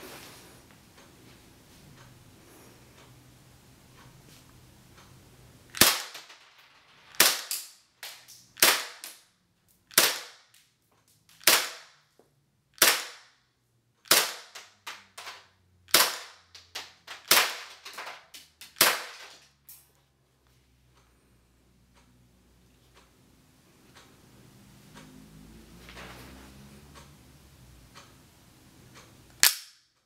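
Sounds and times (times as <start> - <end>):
airsoft pistol shots: 5.8 - 6.3, 7.2 - 7.7, 8.6 - 9.2, 9.9 - 10.4, 11.4 - 11.9, 12.8 - 13.3, 14.1 - 14.6, 15.9 - 16.4, 17.2 - 17.8, 18.8 - 19.3.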